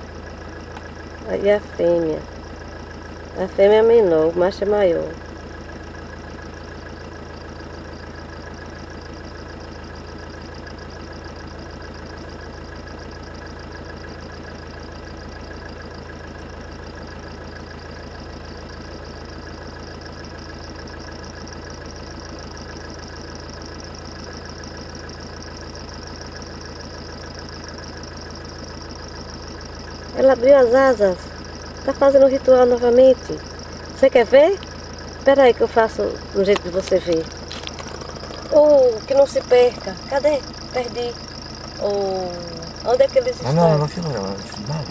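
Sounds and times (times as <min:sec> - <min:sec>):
engine idling: 0:00.0 - 0:44.9.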